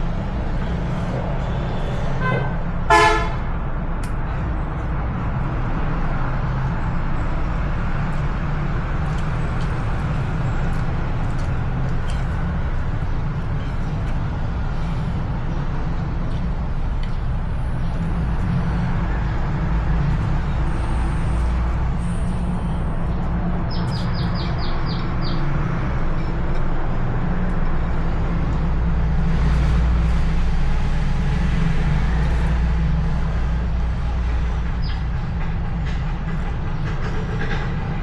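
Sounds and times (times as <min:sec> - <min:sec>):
vehicle horn toot: 0:02.2 - 0:03.5.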